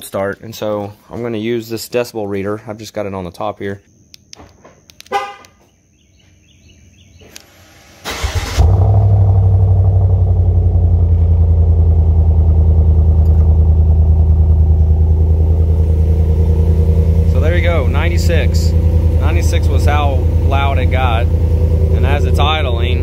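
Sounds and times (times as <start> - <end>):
car engine starting and idling: 7.4 - 23.0.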